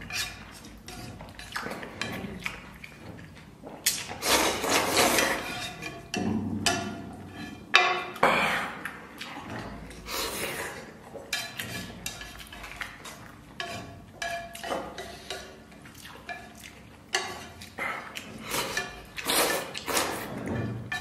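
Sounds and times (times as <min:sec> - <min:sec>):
noodles slurped: 0:01.6 - 0:05.5, 0:17.6 - 0:20.4
chopsticks clinking on pan: 0:11.3 - 0:15.6.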